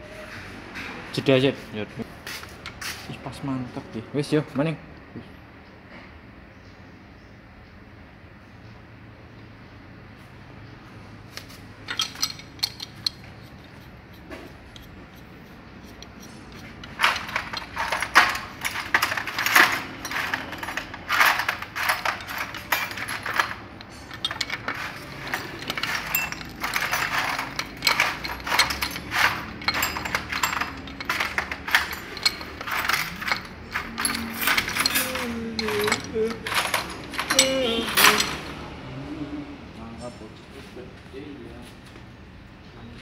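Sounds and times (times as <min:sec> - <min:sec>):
wrench clinking on metal: 0:11.9 - 0:38.5.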